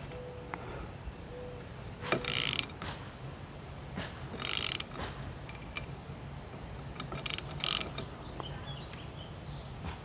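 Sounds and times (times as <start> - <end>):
ratchet wrench clicking: 2.1 - 2.9, 4.4 - 5.9, 6.9 - 8.1.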